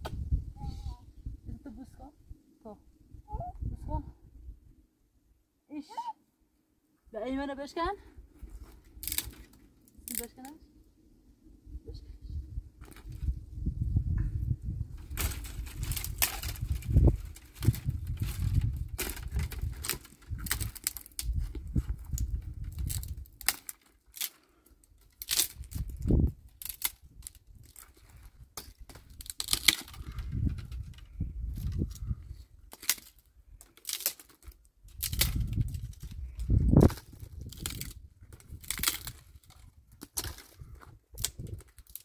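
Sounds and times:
sticks snapping by hand: 9.0s - 10.3s, 15.1s - 24.4s, 25.0s - 28.0s, 28.6s - 31.0s, 32.7s - 40.6s, 41.2s - 42.0s.

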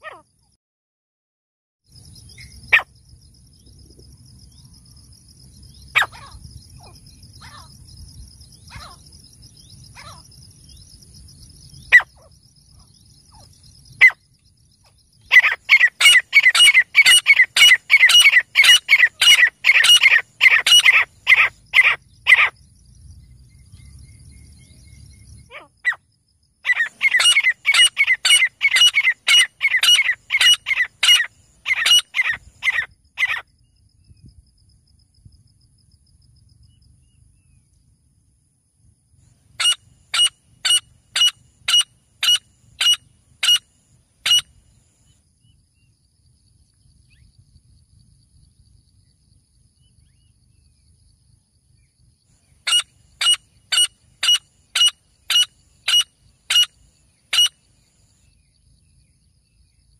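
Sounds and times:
francolin calling: 2.2s - 3.0s, 5.7s - 7.8s, 8.5s - 11.0s, 11.6s - 22.6s, 26.6s - 33.8s, 39.6s - 44.7s, 52.4s - 59.8s.

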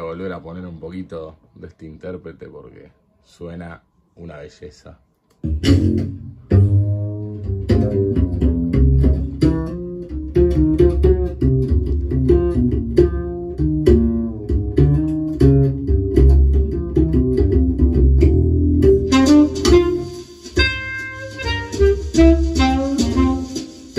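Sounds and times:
plucked guitar over bass: 5.4s - 23.8s.

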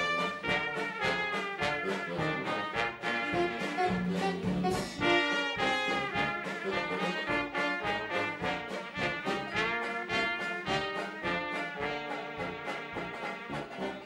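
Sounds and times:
alto saxophone: 0.0s - 14.0s
bass saxophone: 0.0s - 14.0s
clarinet: 0.0s - 14.0s
steady rhythm beat: 0.0s - 14.0s
trombone: 0.0s - 14.0s
trumpet: 0.0s - 14.0s.

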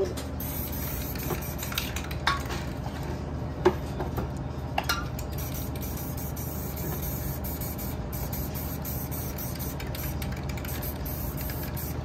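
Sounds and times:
spray paint can hissing: 0.4s - 2.2s, 5.3s - 12.0s.

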